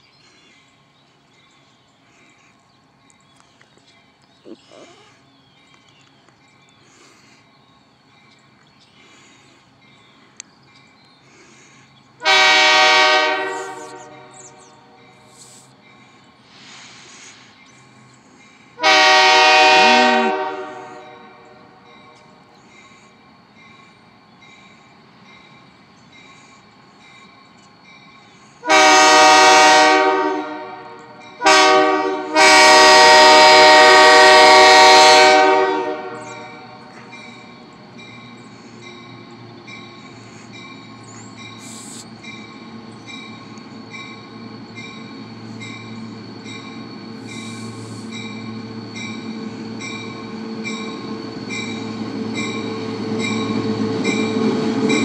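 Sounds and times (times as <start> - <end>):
diesel locomotive rumble: 0.0 - 55.0
locomotive air horn blasts: 12.2 - 14.3, 18.8 - 21.5, 28.6 - 36.8.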